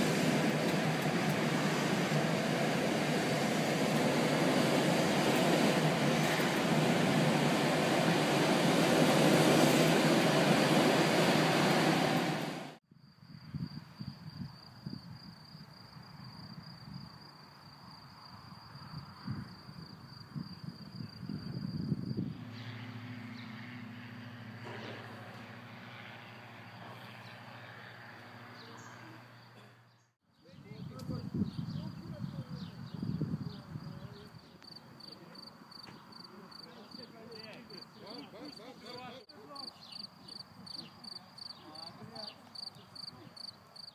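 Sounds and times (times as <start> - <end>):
air rushing past glider canopy: 0.0 - 12.8, 18.8 - 29.2
faint low wind rumble: 0.0 - 29.4, 30.4 - 38.4
high-pitched insect chorus: 31.3 - 38.7, 39.3 - 43.9.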